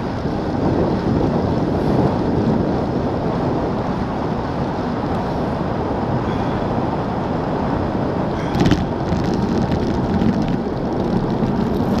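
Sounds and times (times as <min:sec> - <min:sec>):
wind rushing over microphone: 0:00.0 - 0:12.0
bike clicks and rattles: 0:08.4 - 0:12.0.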